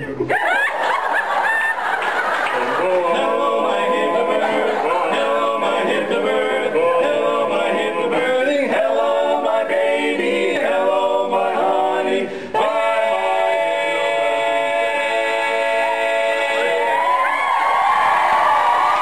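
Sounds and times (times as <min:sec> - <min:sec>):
men singing a cappella: 0:02.5 - 0:17.2.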